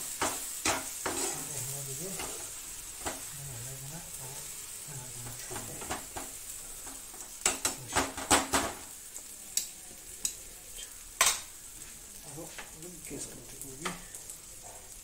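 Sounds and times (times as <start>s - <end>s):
food sizzling in frying pan: 0.0s - 15.0s
spatula knocking on pan: 0.1s - 1.3s, 6.9s - 8.9s.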